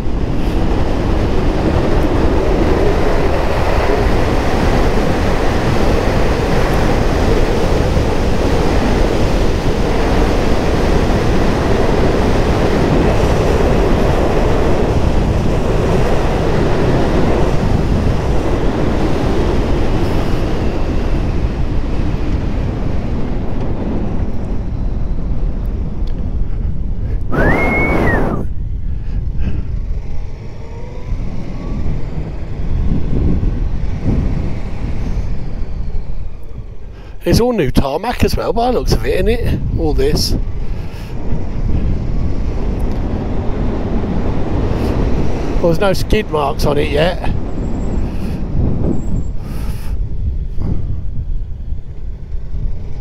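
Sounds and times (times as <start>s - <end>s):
wind rush on microphone: 0.0s - 53.0s
high whistling tone: 27.3s - 28.6s.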